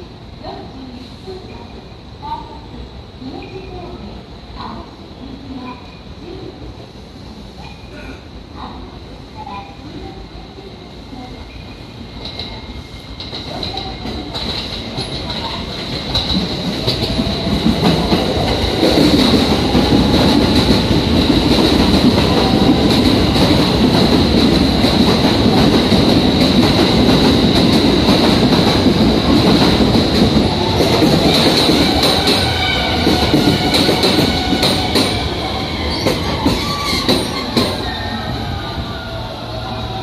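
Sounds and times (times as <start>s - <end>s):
train rumble: 0.0s - 40.0s
wheel and brake squeals: 35.4s - 39.1s.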